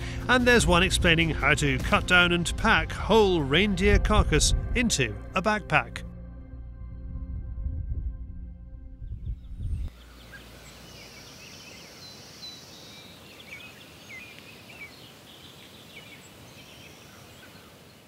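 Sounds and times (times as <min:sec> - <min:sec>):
background music: 0:00.0 - 0:09.7
small birds chirping: 0:09.5 - 0:18.0.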